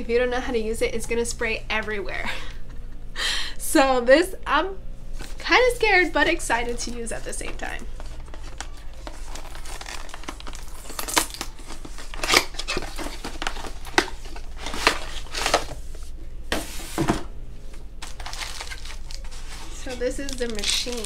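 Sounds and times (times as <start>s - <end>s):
plastic packaging and cardboard rustling: 5.1s - 21.0s.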